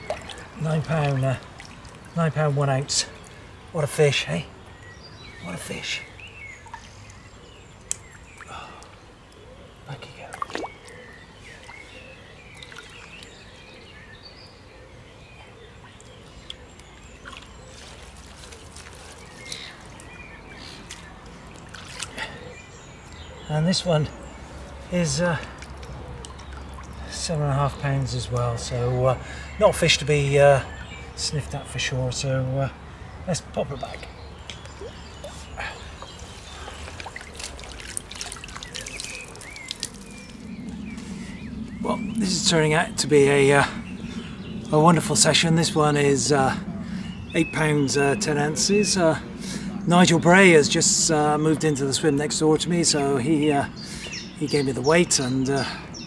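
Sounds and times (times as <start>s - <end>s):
birds singing: 0.0s - 56.0s
lake water splashing and trickling: 0.0s - 56.0s
water pouring from a net: 17.2s - 20.0s, 21.6s - 22.2s, 36.2s - 40.5s.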